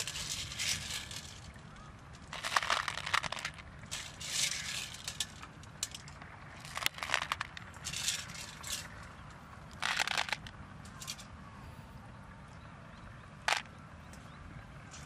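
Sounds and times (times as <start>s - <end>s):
shells grating in metal bowl: 0.0s - 1.5s, 2.3s - 6.0s.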